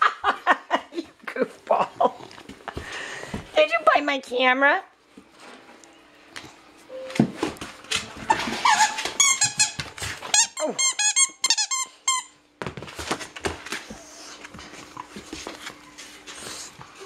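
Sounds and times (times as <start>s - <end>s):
squeaky rubber toy squeaking: 8.6s - 12.3s
thumps and scuffling: 12.6s - 16.3s.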